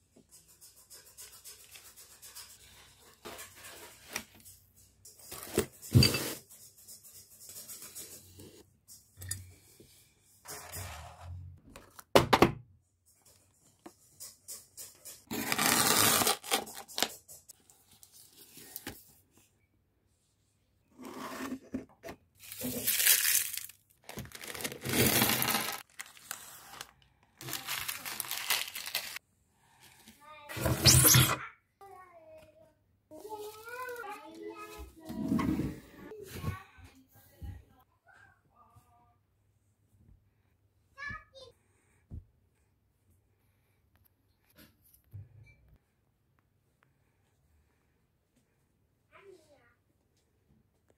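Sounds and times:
objects scraping on wooden table: 20.9s - 21.9s, 35.0s - 36.1s
plastic rustling: 22.4s - 29.2s.

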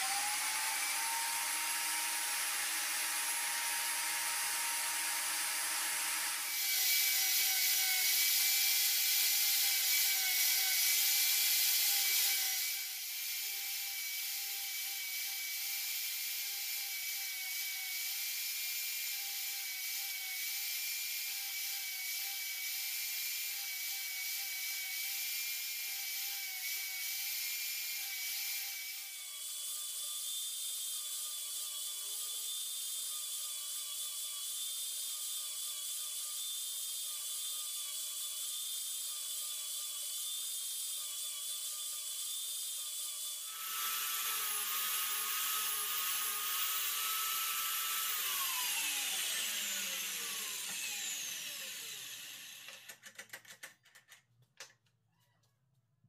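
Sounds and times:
grinder winding down: 0.0s - 20.8s, 43.4s - 53.0s
angle grinder grinding saw blade: 0.0s - 53.0s.

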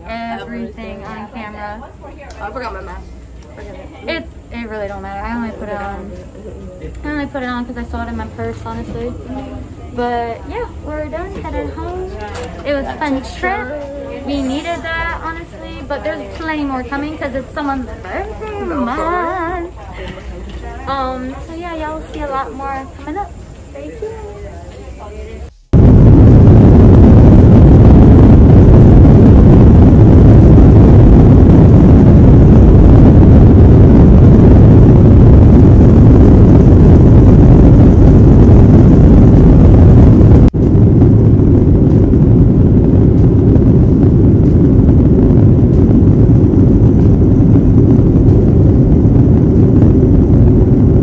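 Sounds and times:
runway rumble: 0.0s - 51.0s
jet engines at takeoff power: 25.8s - 51.0s.

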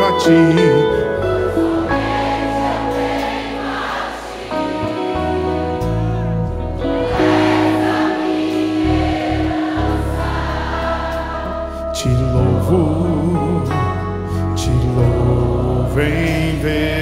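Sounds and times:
bass guitar: 0.0s - 3.6s, 4.5s - 17.0s
electric guitar: 0.0s - 3.9s
live band playing worship song: 0.0s - 17.0s
choir-like singing: 1.2s - 13.9s.

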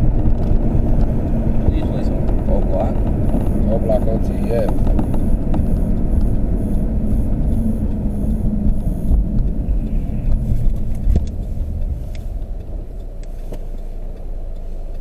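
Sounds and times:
car cabin rumble: 0.0s - 15.0s
faint clicks: 3.0s - 15.0s.

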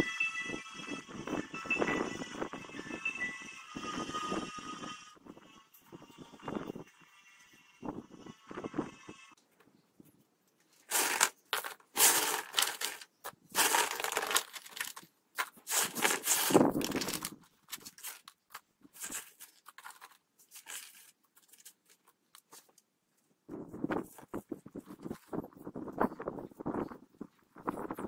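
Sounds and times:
gravel poured into cardboard box: 10.9s - 18.2s
pebbles dropped clicking: 10.9s - 21.7s.

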